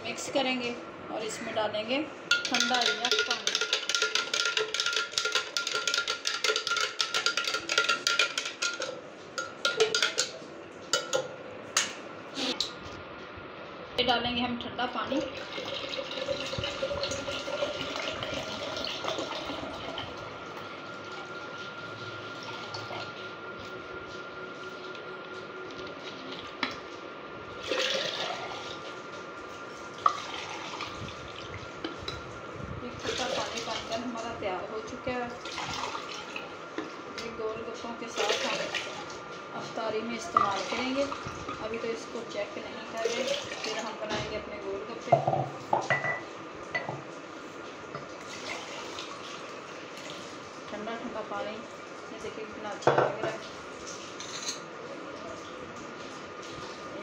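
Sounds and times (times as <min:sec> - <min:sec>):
spoon stirring in glass jug: 0:02.3 - 0:11.2
liquid splashing in a jug: 0:35.3 - 0:36.6, 0:48.1 - 0:50.8
glass clink: 0:45.9 - 0:46.2.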